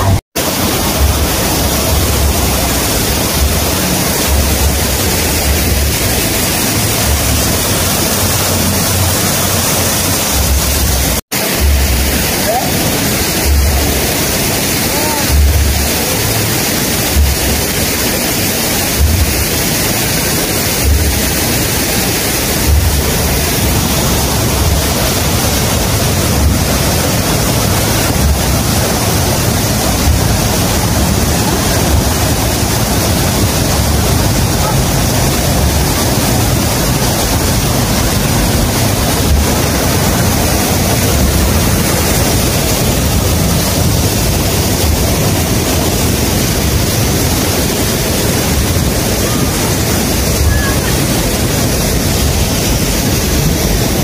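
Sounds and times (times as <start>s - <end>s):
dull low thumps: 0.0s - 12.3s, 17.1s - 17.8s, 18.9s - 19.7s, 22.2s - 47.2s
rush of falling water: 0.0s - 54.0s.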